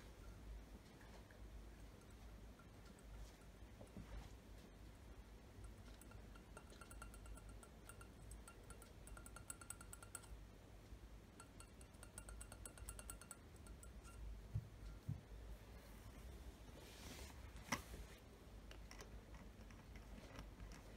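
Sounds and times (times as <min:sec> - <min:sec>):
fingers tapping on a glass: 0:05.6 - 0:10.4, 0:11.4 - 0:15.2.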